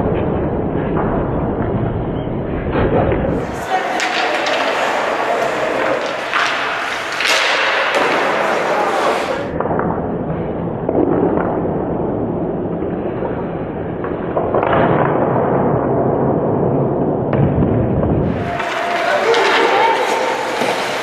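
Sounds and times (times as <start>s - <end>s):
noisy rink rumble: 0.0s - 21.0s
hockey sticks and puck clacking: 2.5s - 15.5s, 17.3s - 21.0s.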